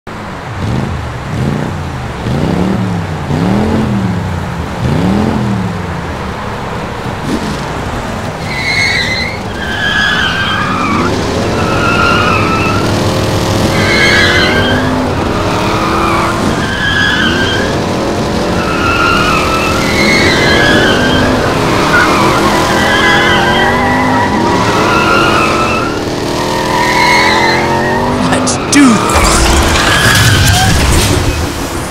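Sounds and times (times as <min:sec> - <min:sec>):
car engine revving: 0:00.2 - 0:31.9
tyres squealing: 0:08.3 - 0:31.5.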